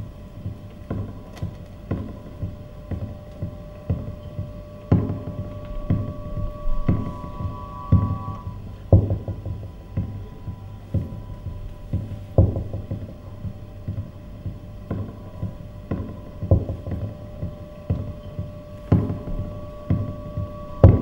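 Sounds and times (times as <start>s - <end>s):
low hum: 0.0s - 21.0s
faint held tones: 0.7s - 21.0s
deep thumps: 1.9s - 10.2s.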